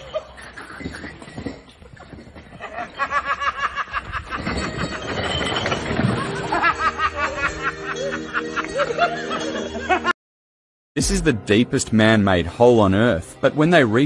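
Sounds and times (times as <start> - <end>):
person laughing hard: 6.2 - 10.1.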